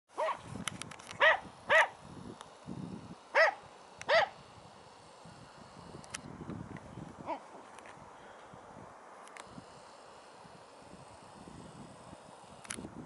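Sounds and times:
dog barking: 0.2s - 0.4s, 1.2s - 2.0s, 3.4s - 4.3s.

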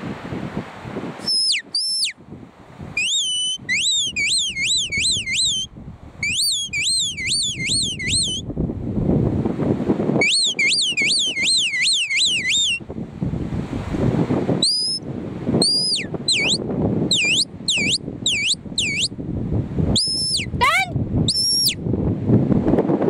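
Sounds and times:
wind rumble on microphone: 0.0s - 23.0s
shepherd whistling: 1.2s - 2.2s, 3.0s - 8.4s, 10.2s - 12.8s, 14.6s - 15.0s, 15.6s - 19.1s, 20.0s - 20.5s, 21.3s - 21.8s.

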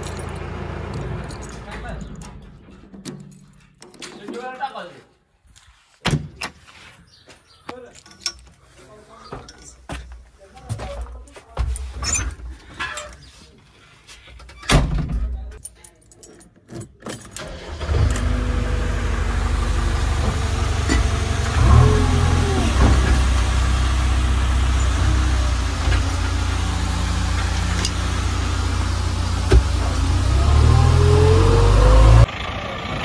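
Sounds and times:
diesel engine starting and running: 0.0s - 3.0s, 17.3s - 33.0s.

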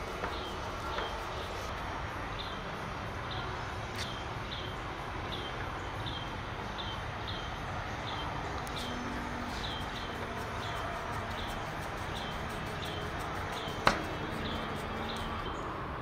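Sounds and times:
steady background hiss: 0.0s - 16.0s
small bird chirping: 5.3s - 15.7s.

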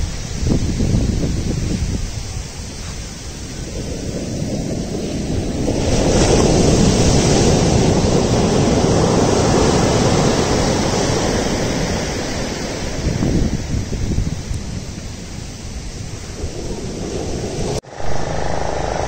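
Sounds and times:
surf breaking on sandy beach: 3.1s - 13.2s.

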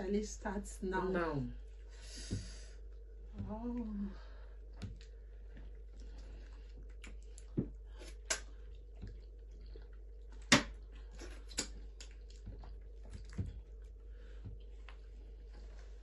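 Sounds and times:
soft chewing: 1.6s - 16.0s
wet smacks from lips and dough: 4.7s - 15.1s.

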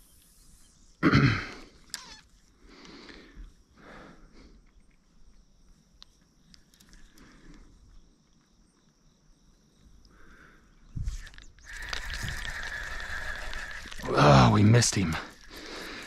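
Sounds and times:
faint steady high hiss: 0.0s - 16.0s
light clicks: 4.6s - 7.7s.

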